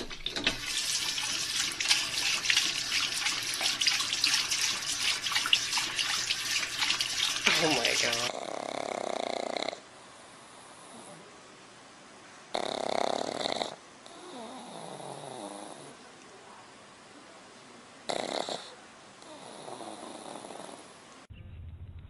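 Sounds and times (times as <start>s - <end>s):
dog snoring: 8.3s - 9.8s, 12.5s - 16.0s, 18.1s - 20.9s.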